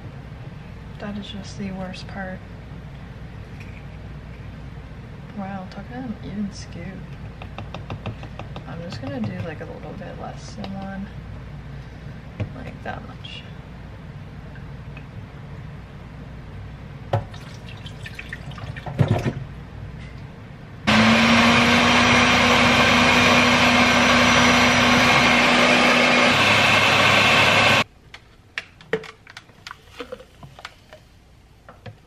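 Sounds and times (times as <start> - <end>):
blender running: 20.9 - 27.8.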